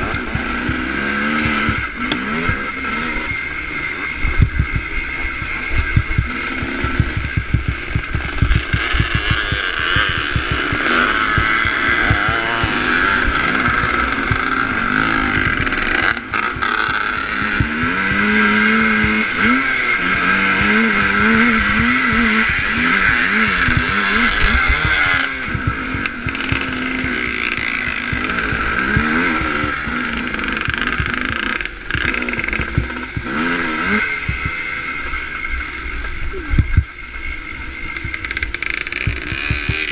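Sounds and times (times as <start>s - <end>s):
motorcycle engine revving: 0.0s - 39.9s
wind buffeting microphone: 4.2s - 15.9s.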